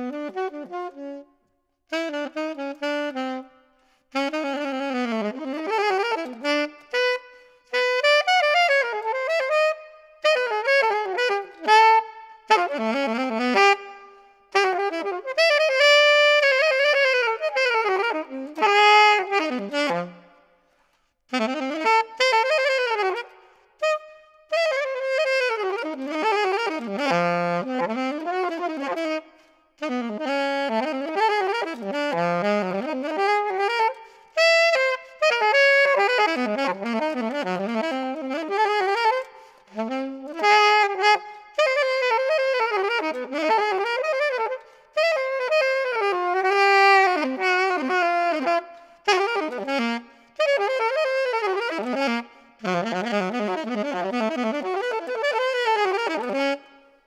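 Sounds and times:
solo alto saxophone jazz: 0.0s - 57.0s.

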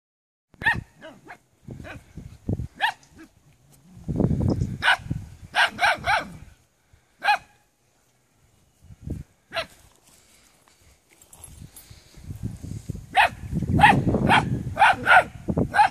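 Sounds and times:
rumbling and rustling near microphone: 1.6s - 5.6s, 8.4s - 15.8s.

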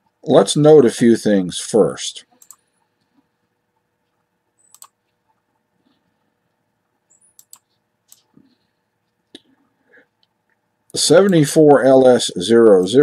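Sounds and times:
computer mouse clicks: 2.4s - 2.7s, 4.1s - 5.1s, 7.1s - 8.5s.

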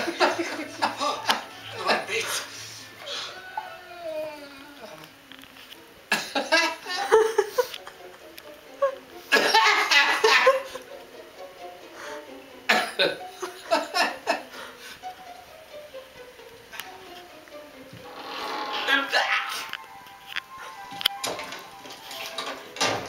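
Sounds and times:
man laughing hard: 0.0s - 2.3s, 8.8s - 10.8s
television voices and music: 0.0s - 23.0s.

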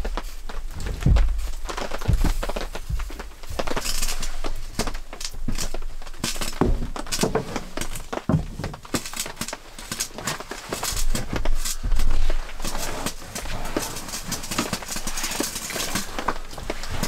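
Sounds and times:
footsteps on wooden floor: 0.0s - 3.9s, 6.6s - 7.6s, 8.3s - 8.8s
firewood logs knocking and scraping: 0.0s - 17.0s.

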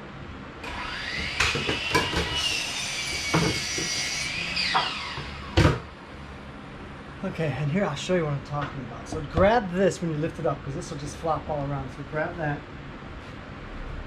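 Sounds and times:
small motor whirring: 0.6s - 5.6s.

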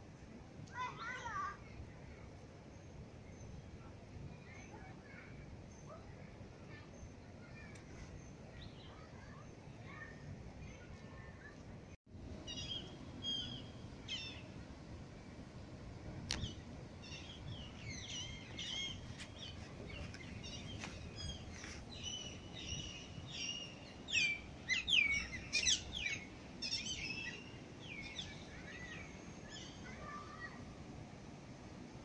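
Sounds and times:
birds chirping and calling: 16.4s - 29.0s.

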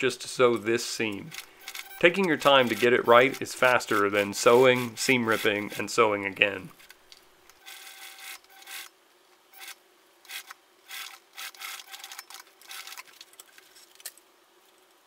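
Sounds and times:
sewing machine stitching: 1.3s - 5.9s.

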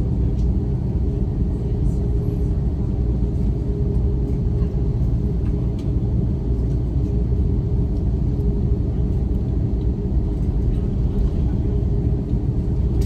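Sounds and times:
aircraft engines rumbling: 0.0s - 13.0s.

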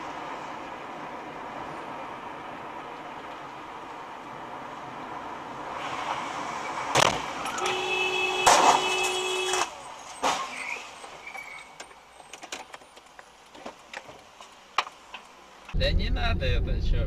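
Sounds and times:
car horn held: 7.5s - 9.7s
car crash: 8.4s - 12.8s.

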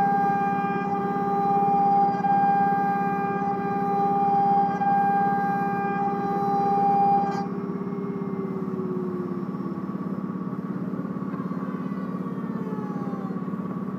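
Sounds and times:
lower tone sinking in pitch: 0.0s - 13.9s
rapid pulsing hum: 0.0s - 13.9s
router high whine: 0.0s - 13.9s.

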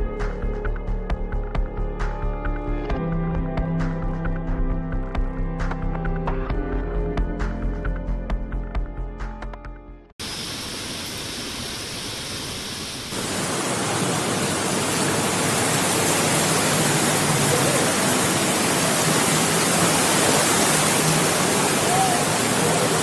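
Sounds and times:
floodwater rushing: 10.2s - 23.0s.

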